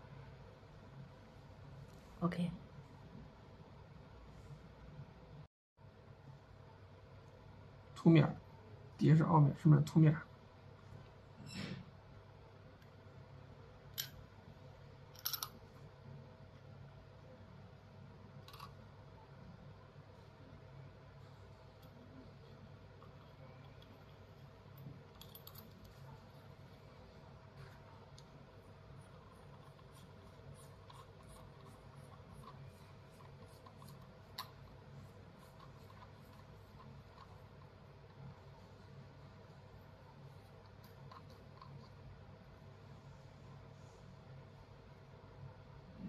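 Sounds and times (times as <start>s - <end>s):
faint steady hum: 0.0s - 46.0s
metal parts clicking: 15.2s - 15.6s.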